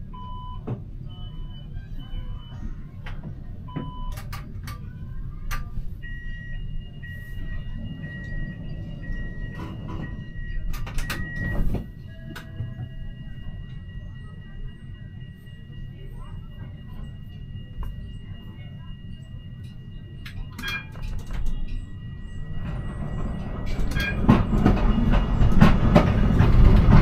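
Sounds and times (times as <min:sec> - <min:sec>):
tram running rumble: 0:00.0 - 0:27.0
high electronic beep: 0:06.0 - 0:24.3.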